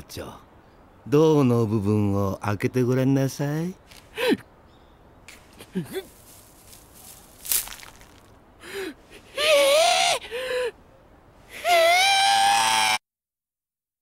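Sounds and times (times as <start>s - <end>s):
man crying out in anguish: 8.7s - 10.7s.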